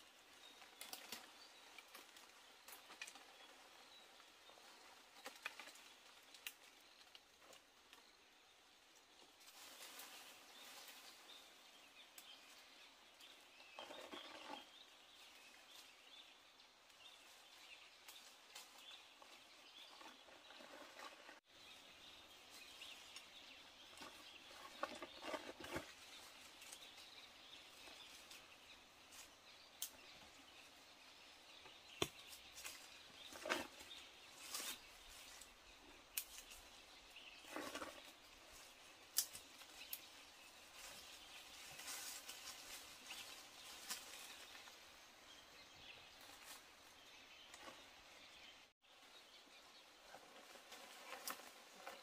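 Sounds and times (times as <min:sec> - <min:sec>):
rustling: 0:09.4 - 0:11.5, 0:17.1 - 0:21.5, 0:22.5 - 0:30.0, 0:32.1 - 0:44.9, 0:50.0 - 0:52.0.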